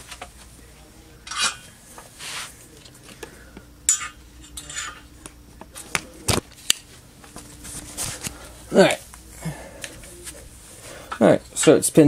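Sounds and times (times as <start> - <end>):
metallic clinks and scrapes: 1.3 - 1.7, 3.9 - 5.0.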